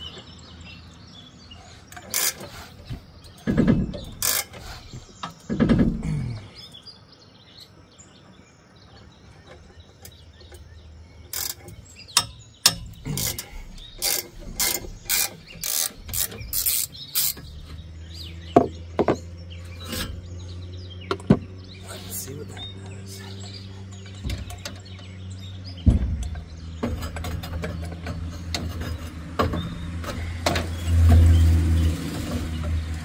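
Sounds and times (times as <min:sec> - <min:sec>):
dull thumps: 0:02.3 - 0:06.4, 0:23.4 - 0:31.4
ratchet wrench clicking: 0:11.3 - 0:17.6.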